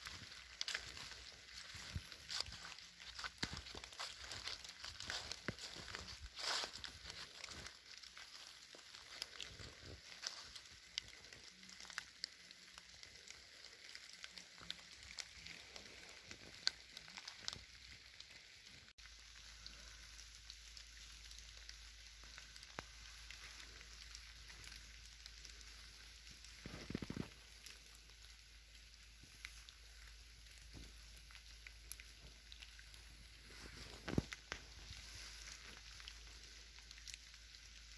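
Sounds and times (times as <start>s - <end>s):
water dripping on leaves: 0.0s - 37.9s
soft hiss: 19.0s - 37.9s.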